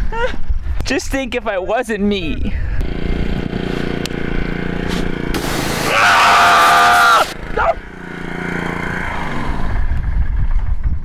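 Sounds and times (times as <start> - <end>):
pressure washer jet hissing: 4.9 - 7.4
man yelling: 5.8 - 7.8
short cry: 5.8 - 7.8.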